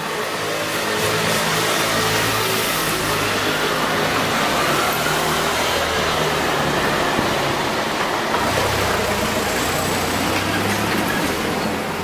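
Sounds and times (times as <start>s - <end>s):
low hum of road traffic: 0.0s - 12.0s.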